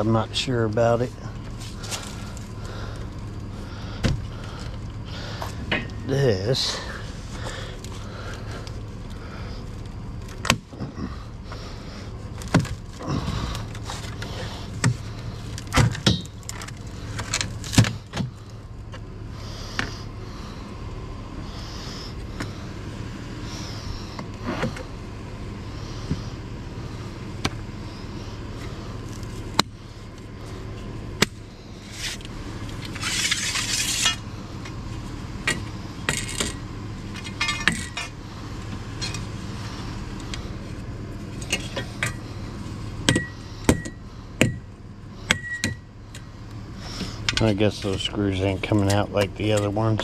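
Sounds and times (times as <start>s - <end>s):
steady low hum: 0.0s - 50.0s
metal scraping rattle: 31.8s - 34.4s, 35.4s - 42.4s.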